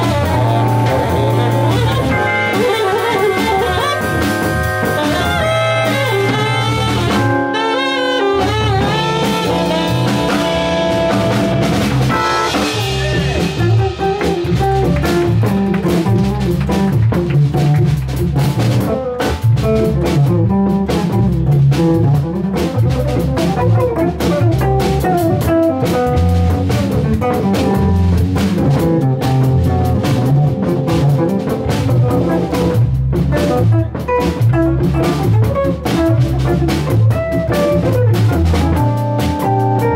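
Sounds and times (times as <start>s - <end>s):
saxophone: 0.0s - 16.0s
drum kit: 0.0s - 39.9s
electric guitar: 0.0s - 39.9s.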